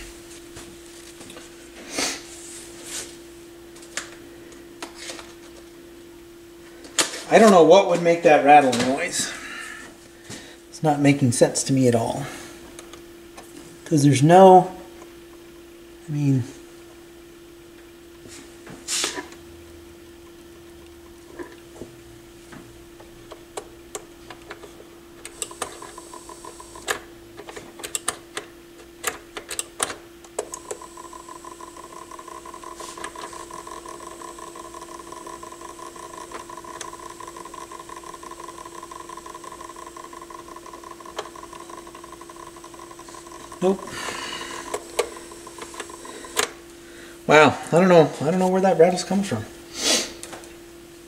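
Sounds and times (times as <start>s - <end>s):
turntable hum: 0.0s - 48.9s
mechanism clicks: 23.0s - 43.9s, 44.6s - 46.6s
buzzing rattle of gear mechanism: 23.0s - 46.6s.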